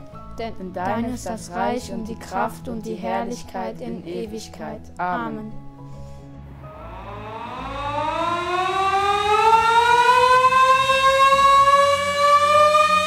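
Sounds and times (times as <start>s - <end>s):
warning siren winding up: 6.7s - 13.0s.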